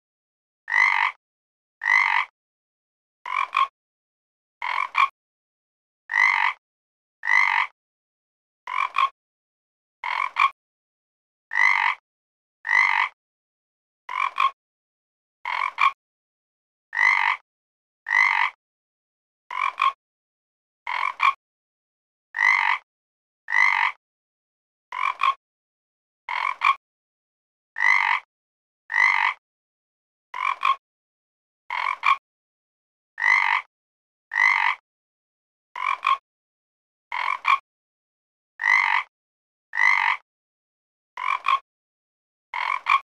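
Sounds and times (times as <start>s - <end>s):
frog croaking: 0.7s - 1.2s, 1.8s - 2.3s, 3.3s - 3.7s, 4.6s - 5.1s, 6.1s - 6.6s, 7.2s - 7.7s, 8.7s - 9.2s, 10.0s - 10.6s, 11.5s - 12.0s, 12.6s - 13.2s, 14.1s - 14.6s, 15.5s - 16.0s, 16.9s - 17.4s, 18.1s - 18.6s, 19.5s - 20.0s, 20.9s - 21.4s, 22.4s - 22.8s, 23.5s - 24.0s, 24.9s - 25.4s, 26.3s - 26.8s, 27.8s - 28.3s, 28.9s - 29.4s, 30.4s - 30.8s, 31.7s - 32.2s, 33.2s - 33.7s, 34.3s - 34.8s, 35.8s - 36.2s, 37.1s - 37.6s, 38.6s - 39.1s, 39.7s - 40.2s, 41.2s - 41.6s, 42.6s - 43.0s.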